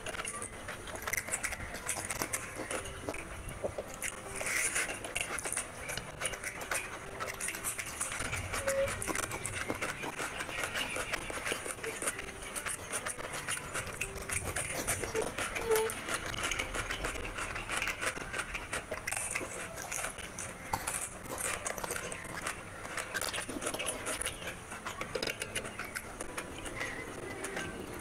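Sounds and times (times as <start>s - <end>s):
chewing with lip smacks: 0.0s - 28.0s.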